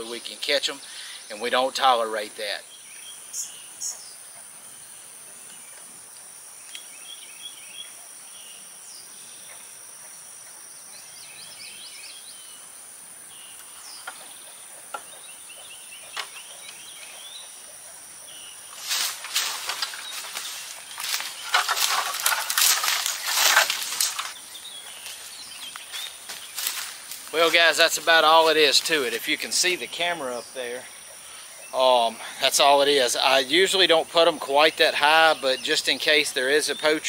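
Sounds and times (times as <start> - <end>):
bird chirps: 2.5 - 5.9, 10.8 - 12.7, 13.3 - 32.1
ladder clatter and rustle: 18.8 - 24.4.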